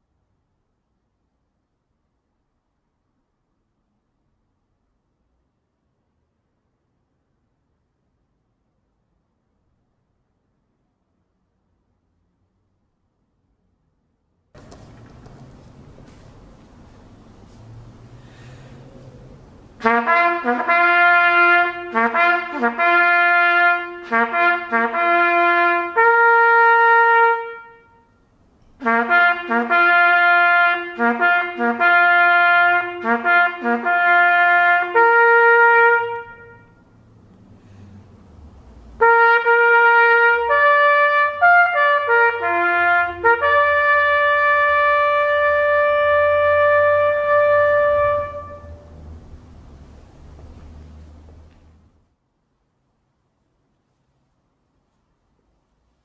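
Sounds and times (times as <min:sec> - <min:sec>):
solo trumpet playing a bugle call: 0:19.8 - 0:36.9, 0:39.0 - 0:49.0.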